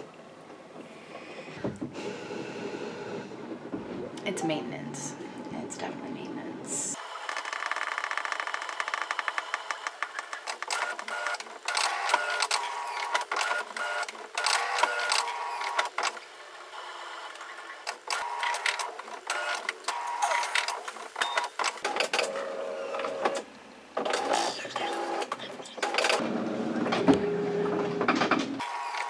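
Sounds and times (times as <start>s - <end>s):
printer motors whirring and clicking: 7.0s - 23.4s, 24.0s - 29.0s.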